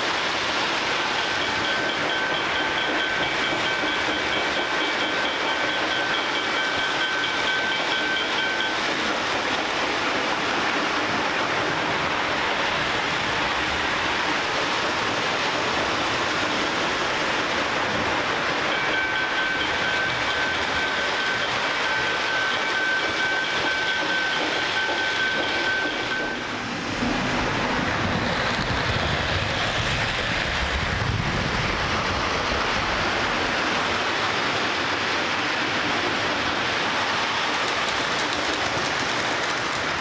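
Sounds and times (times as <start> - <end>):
model train wheels clattering: 18.0 - 26.5, 34.4 - 40.0
steady high whine: 24.8 - 35.4.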